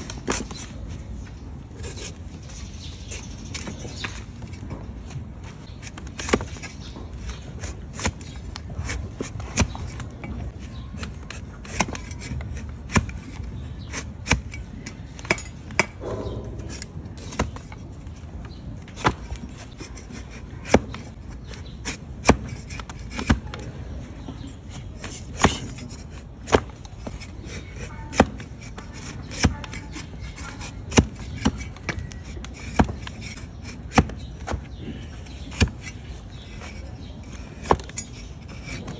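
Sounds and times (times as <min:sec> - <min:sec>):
blade shaving hoof horn: 0:24.4 - 0:38.9.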